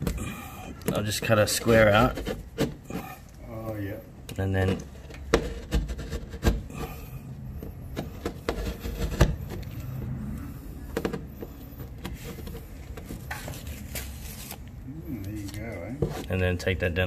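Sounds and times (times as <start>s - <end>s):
knife scraping plasterboard: 0.9s - 3.2s, 4.6s - 9.9s
scratchy rubbing: 1.1s - 3.2s, 4.4s - 7.0s, 7.7s - 10.2s.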